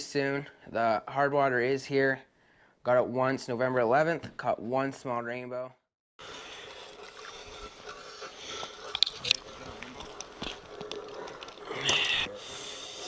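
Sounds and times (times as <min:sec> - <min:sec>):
crunching and scraping on snowy ice: 0:06.7 - 0:12.4.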